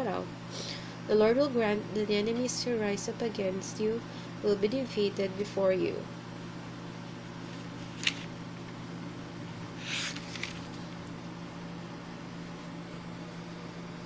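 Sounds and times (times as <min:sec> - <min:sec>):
electric desk fan humming: 0:00.0 - 0:14.0
page turning rustle: 0:07.4 - 0:08.4, 0:09.8 - 0:11.0.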